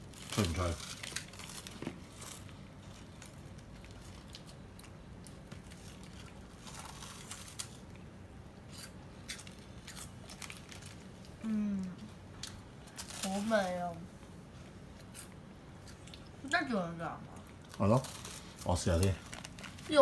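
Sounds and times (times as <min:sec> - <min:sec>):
plastic wrapper crinkling: 0:00.0 - 0:07.9, 0:09.4 - 0:11.3, 0:12.8 - 0:13.8, 0:17.7 - 0:20.0
crunching and chewing snack: 0:00.0 - 0:11.4, 0:12.4 - 0:13.4, 0:17.4 - 0:19.9.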